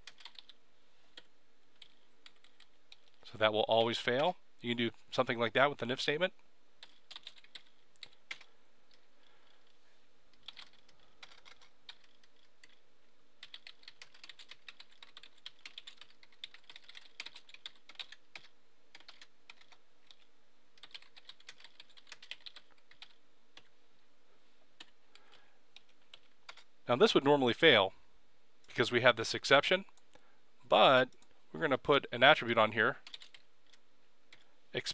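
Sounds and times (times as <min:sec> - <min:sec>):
faint keyboard typing: 0:00.0 - 0:05.0, 0:06.8 - 0:23.8, 0:24.7 - 0:26.7, 0:31.1 - 0:31.4, 0:33.0 - 0:34.6.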